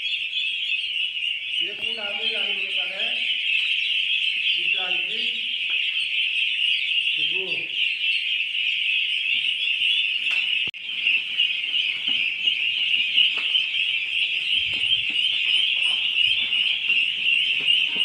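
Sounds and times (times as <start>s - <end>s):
ducklings peeping: 0.0s - 18.0s.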